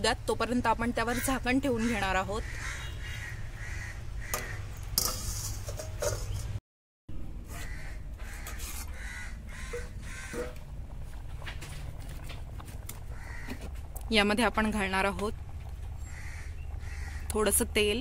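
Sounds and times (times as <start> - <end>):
crows cawing: 1.1 - 4.8, 7.5 - 10.7, 13.0 - 13.8, 16.0 - 17.3
metal plate clinking on pot: 5.0 - 6.5
low steady rumble: 7.1 - 18.0.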